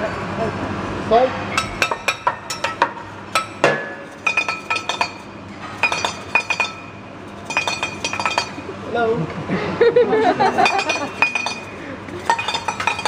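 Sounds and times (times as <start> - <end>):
metal spatula tapping steel shaker: 7.4 - 8.6, 10.6 - 13.0.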